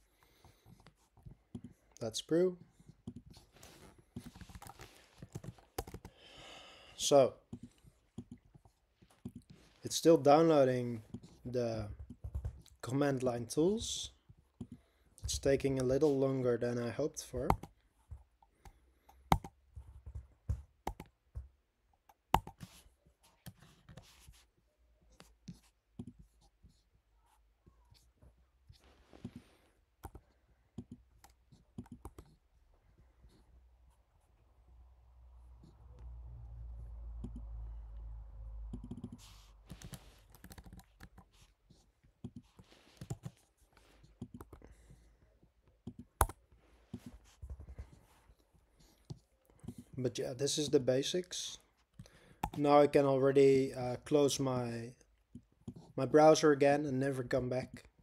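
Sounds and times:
soft rustles: 2.9 - 5.8, 28.0 - 29.8, 41.2 - 44.2
computer clicks and taps: 4.2 - 6.1, 17.3 - 17.8, 19.1 - 21.5, 22.1 - 22.7, 30.0 - 30.2, 30.8 - 32.3, 37.2 - 37.5, 38.7 - 39.2, 39.8 - 41.2, 45.8 - 47.1, 52.4 - 52.6
laptop keyboard key presses: 4.5 - 6.1, 19.2 - 21.1, 22.1 - 22.6.

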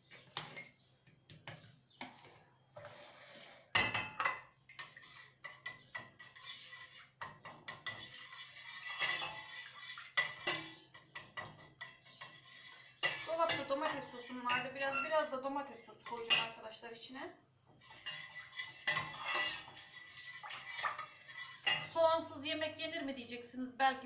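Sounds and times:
metal spoon scraping a pot: 2.0 - 16.6, 17.8 - 22.0.

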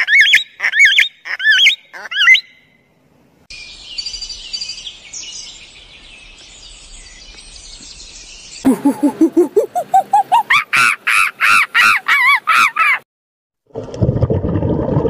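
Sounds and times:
small birds chirping: 3.5 - 10.6
monkey rapid calls: 8.7 - 13.0.

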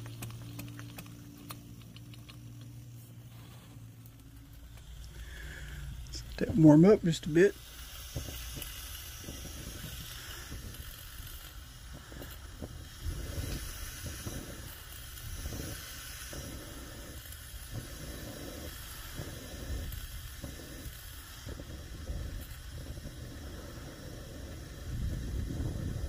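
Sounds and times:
camping stove hissing: 0.0 - 26.0.

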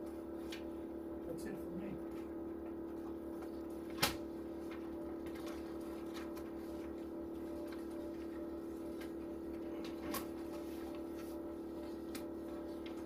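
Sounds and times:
machine humming: 0.0 - 13.0
paper pages rustling: 3.5 - 13.0.

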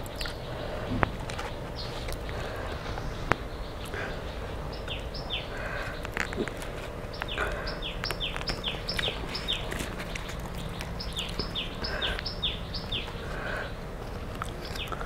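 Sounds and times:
bird calling downward notes: 0.0 - 15.0.

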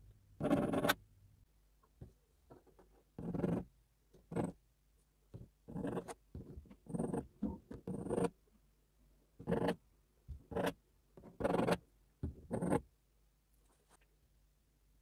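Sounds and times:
pencil scratching on cardboard: 0.4 - 1.0, 3.2 - 3.7, 4.3 - 4.6, 5.7 - 8.4, 9.4 - 9.8, 10.4 - 11.8, 12.4 - 12.9.

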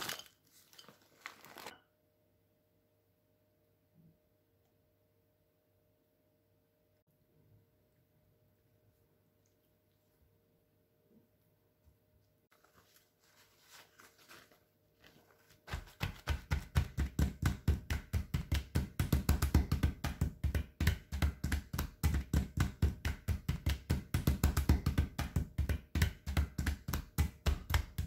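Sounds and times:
hands patting paper towels: 12.5 - 28.0.

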